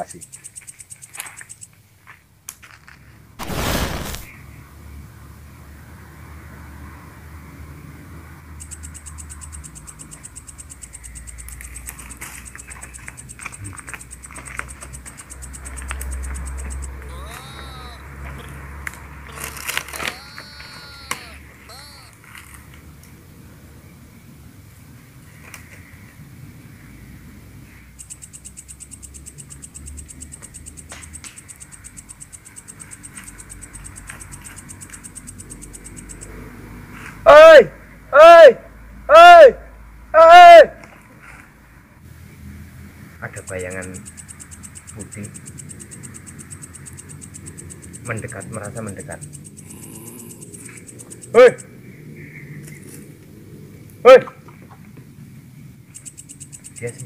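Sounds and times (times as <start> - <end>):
insects trilling: 0.0 - 1.8, 3.4 - 4.3, 8.5 - 22.2, 27.7 - 36.4, 43.3 - 53.0, 55.9 - 57.0
cricket chirping: 0.0 - 1.9, 8.4 - 22.2, 27.6 - 36.6, 43.3 - 53.0, 55.6 - 57.0.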